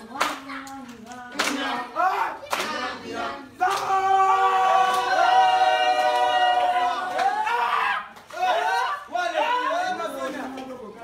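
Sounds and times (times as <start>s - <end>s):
voices singing: 0.0s - 7.3s.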